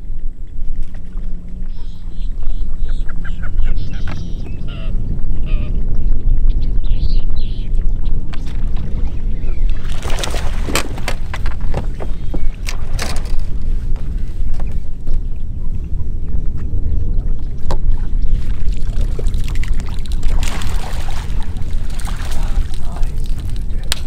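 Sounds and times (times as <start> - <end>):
boat motor rumble: 0.0 - 24.0
water: 0.0 - 24.0
wind buffeting microphone: 0.0 - 24.0.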